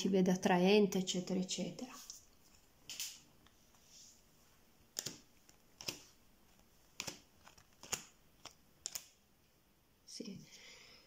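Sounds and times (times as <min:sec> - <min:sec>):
playing cards laid on table: 0:04.9 - 0:09.2.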